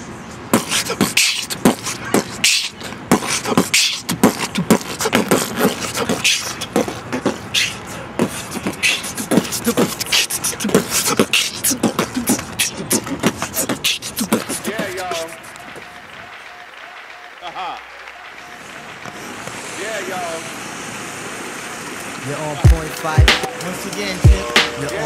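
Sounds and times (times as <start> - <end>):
beatboxing: 0.4 - 16.1, 22.4 - 25.0.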